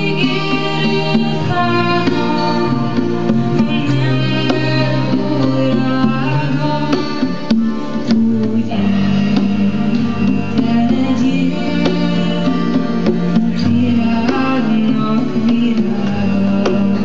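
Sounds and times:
conga drums: 0.0s - 17.0s
sustained melody line: 0.0s - 17.0s.

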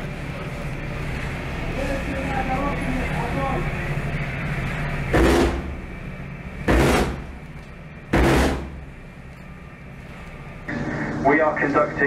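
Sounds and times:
deck gun firing bursts: 5.2s - 5.7s, 6.7s - 7.4s, 8.2s - 8.8s.

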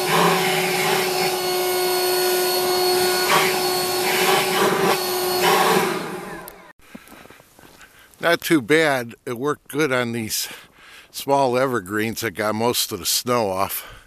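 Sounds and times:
leaf blower running: 0.0s - 6.7s.

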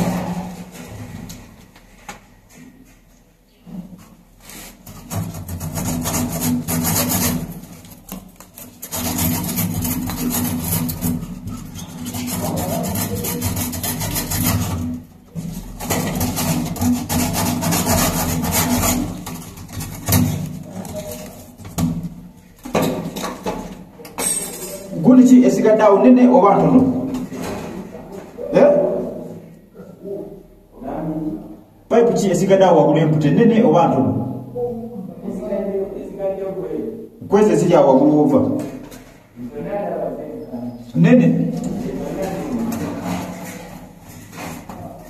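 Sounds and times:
hand tool rasping strokes: 4.4s - 15.0s, 15.8s - 21.3s.

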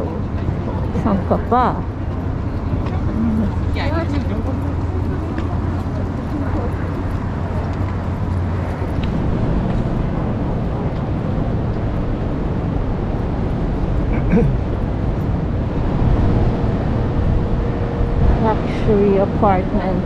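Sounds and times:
faint voices: 0.0s - 9.0s
city ambience rumble: 0.0s - 20.0s.

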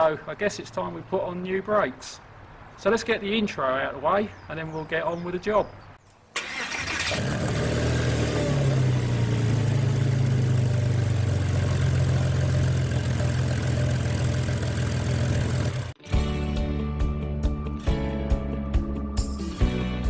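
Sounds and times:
car engine running: 7.1s - 16.0s.

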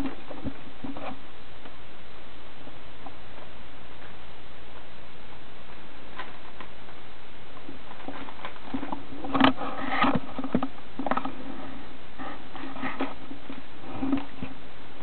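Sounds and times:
guinea pigs rustling in bedding: 0.0s - 1.8s, 2.6s - 15.0s.

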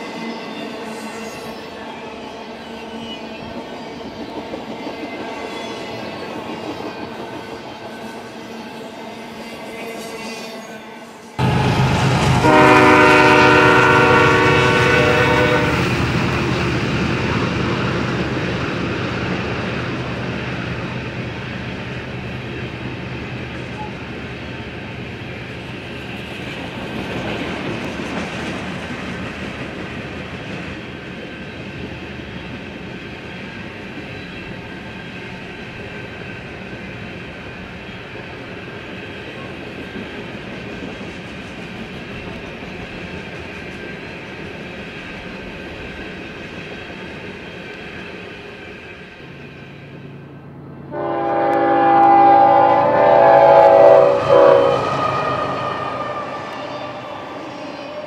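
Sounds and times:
train rumbling past: 0.0s - 58.0s
locomotive horn blast: 11.4s - 16.0s, 50.9s - 57.4s
freight cars clickety-clack: 15.6s - 34.3s, 35.8s - 48.6s.

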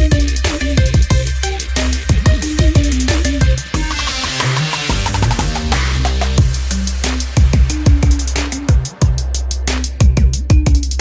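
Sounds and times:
electronic music with drum beat: 0.0s - 11.0s.

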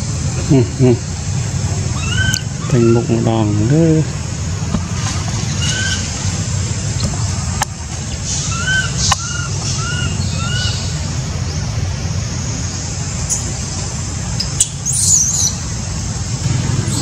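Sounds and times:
baby monkey squeaking calls: 1.9s - 3.1s, 5.5s - 6.1s, 8.2s - 11.0s, 14.4s - 15.6s.

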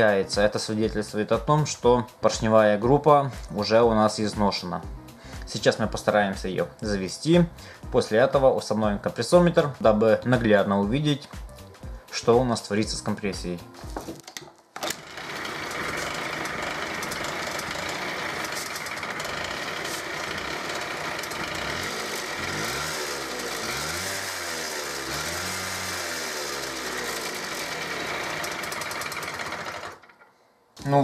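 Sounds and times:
two-stroke scooter engine revving: 14.9s - 30.2s.

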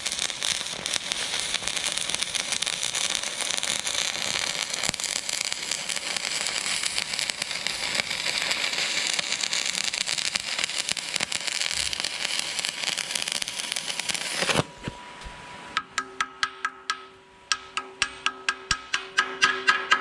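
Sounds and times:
welding arc crackling: 0.0s - 14.7s.

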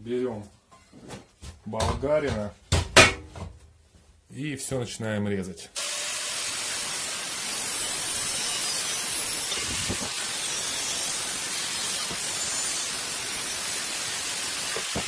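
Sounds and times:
angle grinder cutting steel: 5.8s - 15.0s.

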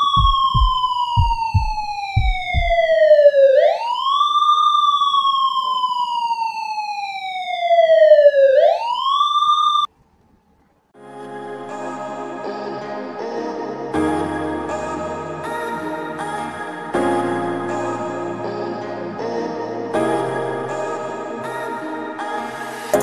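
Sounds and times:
low thumps: 0.0s - 3.0s
police siren wailing: 0.0s - 9.9s.

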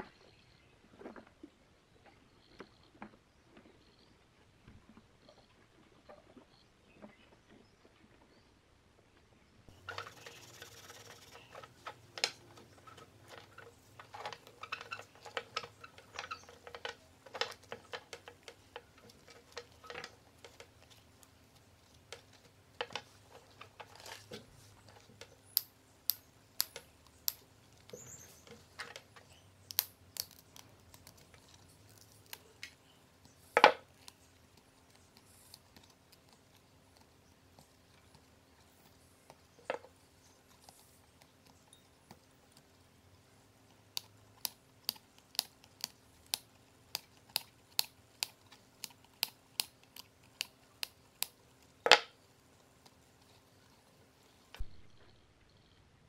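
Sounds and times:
cutters clicking and scraping: 9.7s - 42.7s, 43.6s - 54.6s.

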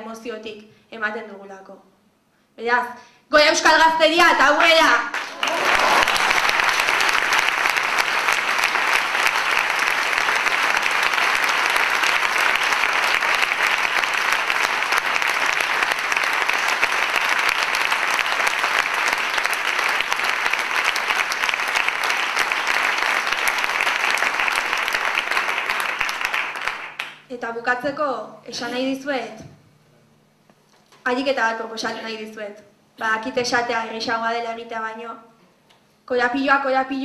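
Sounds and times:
audience applause: 5.1s - 27.2s.

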